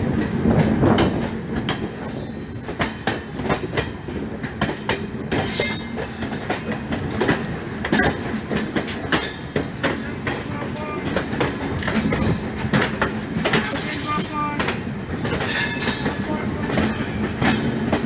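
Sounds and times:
train rumbling at speed: 0:00.0 - 0:18.0
wheel clacks over rail joints: 0:00.1 - 0:18.0
high wheel squeal: 0:12.0 - 0:12.7, 0:13.7 - 0:14.4.

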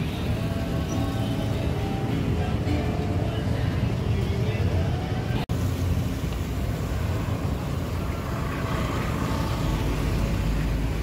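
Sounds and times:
street traffic rumble: 0:00.0 - 0:11.0.

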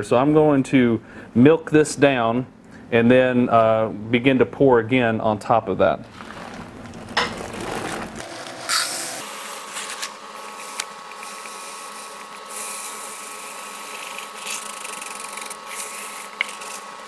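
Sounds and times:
plastic pellets pouring: 0:06.0 - 0:09.3
fabric rubbing: 0:06.0 - 0:10.0.

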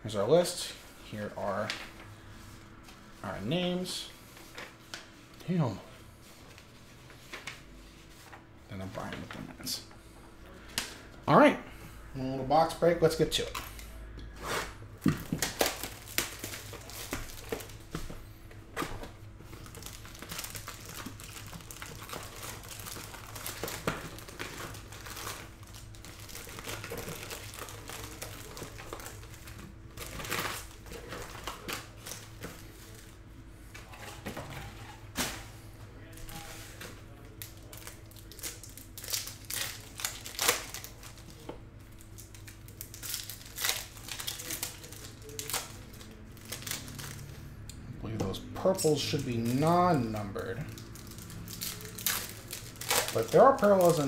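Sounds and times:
foil wrappers crinkling and tearing: 0:13.1 - 0:18.2, 0:18.8 - 0:47.5, 0:48.6 - 0:54.0.

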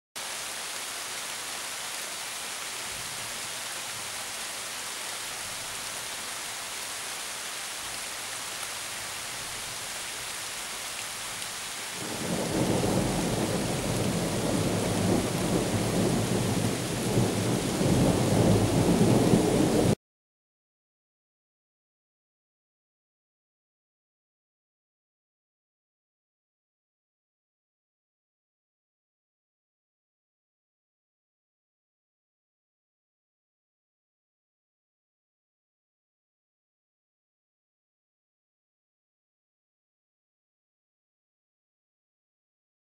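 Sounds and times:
rain hissing: 0:00.2 - 0:20.0
thunder rumbling: 0:12.0 - 0:20.0.

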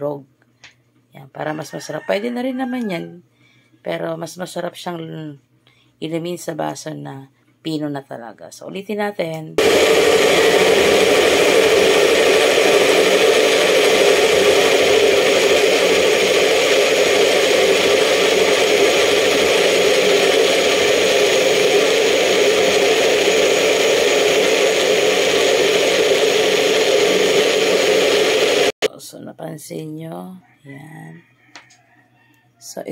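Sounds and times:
blender running: 0:09.6 - 0:28.9.

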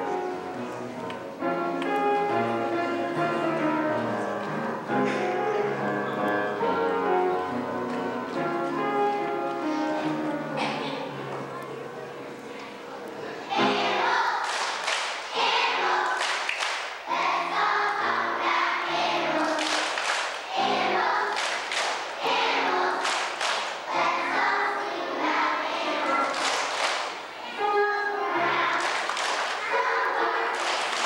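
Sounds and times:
voices singing together: 0:13.4 - 0:31.0.

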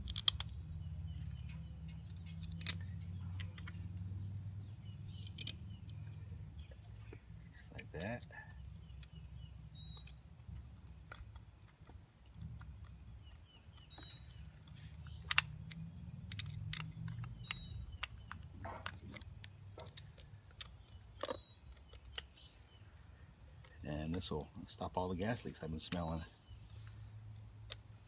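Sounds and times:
metallic clicks and taps: 0:00.0 - 0:04.1, 0:05.2 - 0:07.2, 0:09.8 - 0:22.4.

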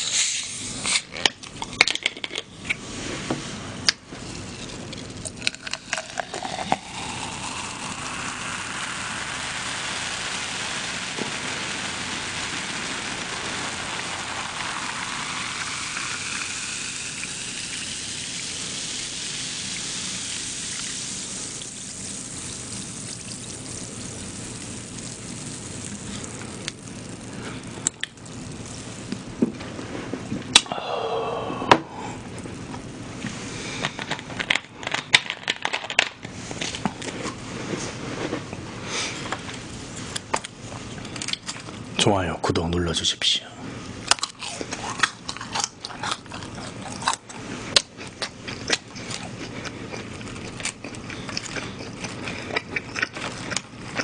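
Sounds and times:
drink fizzing: 0:04.6 - 0:29.7
cola pouring into glass: 0:05.2 - 0:29.2.

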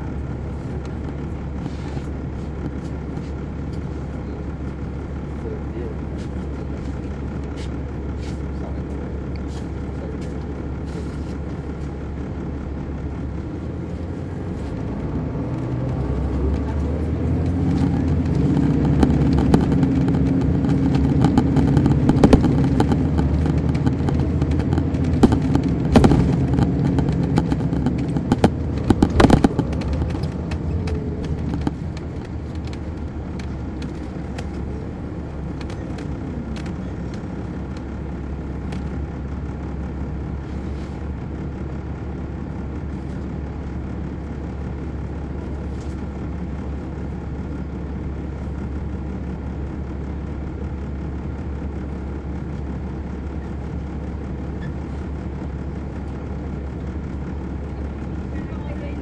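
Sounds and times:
bus diesel engine: 0:00.0 - 0:59.0
sharp knocks and rattles: 0:14.9 - 0:34.7.

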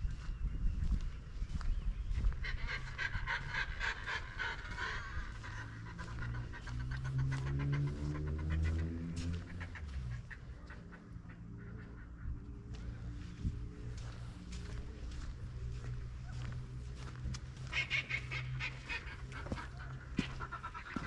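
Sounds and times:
fast rhythmic panting: 0:02.4 - 0:14.6.

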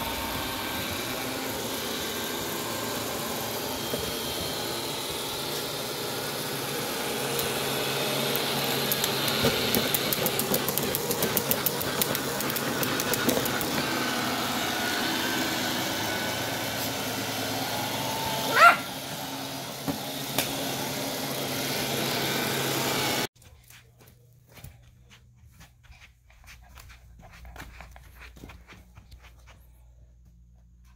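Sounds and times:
vacuum clicking: 0:00.0 - 0:23.2
robot vacuum running: 0:00.0 - 0:23.3
dog yelping bark: 0:18.4 - 0:19.0.

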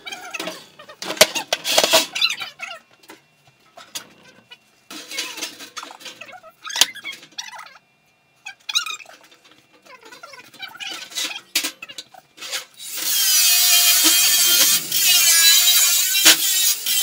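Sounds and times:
squeaking metal scrapes: 0:12.4 - 0:17.0.

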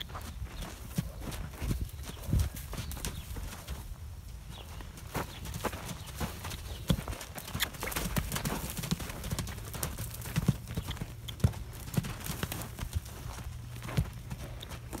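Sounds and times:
hooves thudding on sand: 0:00.0 - 0:15.0.

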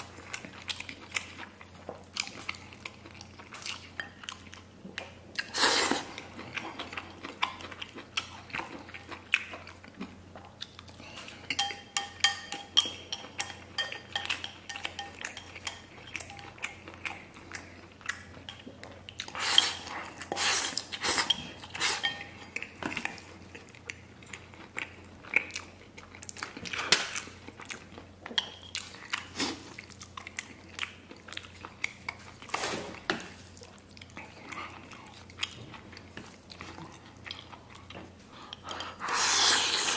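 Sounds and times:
chewing: 0:00.0 - 0:39.9
loud slurping of noodles: 0:39.0 - 0:39.9.

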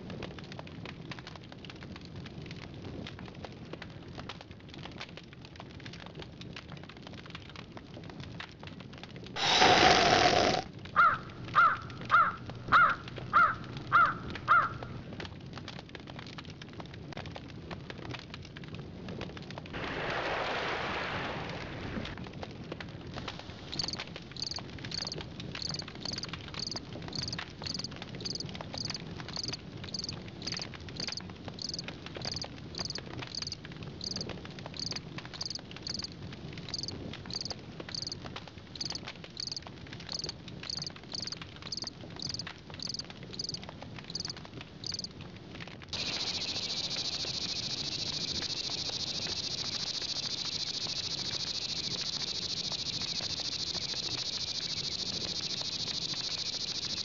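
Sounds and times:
crickets chirping: 0:09.4 - 0:10.6, 0:23.2 - 0:36.1, 0:36.7 - 0:38.2, 0:38.8 - 0:45.1, 0:46.0 - 0:57.0
crow cawing: 0:09.4 - 0:14.9.

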